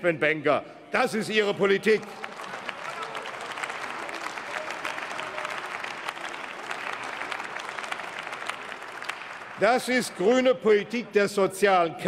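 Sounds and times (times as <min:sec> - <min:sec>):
crowd applauding: 0:01.6 - 0:10.6.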